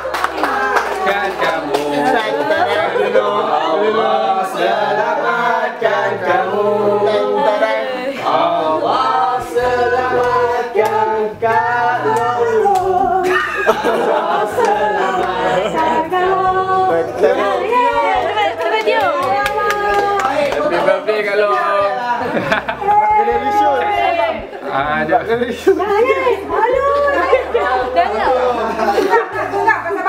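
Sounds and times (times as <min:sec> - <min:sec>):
hand-clapping: 0:00.0 - 0:02.4, 0:10.2 - 0:13.0, 0:14.6 - 0:15.4, 0:18.6 - 0:20.7
group singing birthday song: 0:00.0 - 0:30.0.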